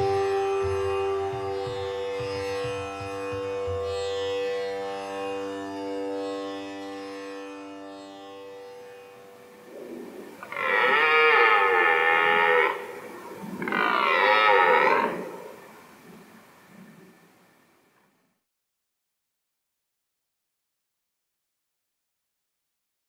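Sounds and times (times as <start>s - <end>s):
background music: 0.0s - 7.4s
deer stag roaring: 9.7s - 15.7s.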